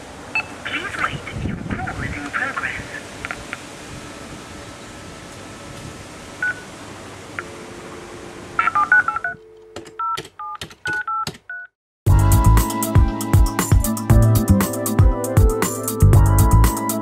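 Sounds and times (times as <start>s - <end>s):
touch-tone dialling beeps: 0.4s - 0.6s, 6.4s - 6.7s, 8.6s - 11.7s
music with a beat: 12.1s - 17.0s.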